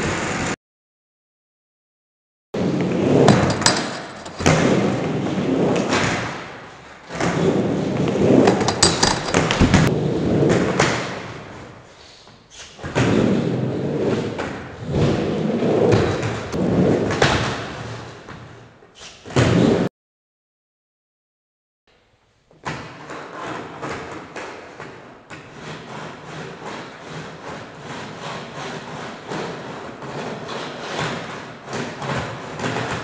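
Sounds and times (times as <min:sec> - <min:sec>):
skateboard wheels rolling on wood: 0:02.6 - 0:11.8, 0:13.0 - 0:18.3, 0:22.9 - 0:33.0
skateboard clacks: 0:03.1 - 0:06.5, 0:07.2 - 0:11.4
skateboard landing thuds: 0:08.2 - 0:10.1.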